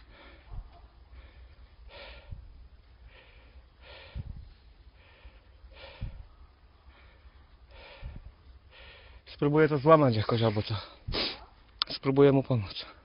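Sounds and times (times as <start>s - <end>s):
heavy breathing: 0.0s - 9.3s.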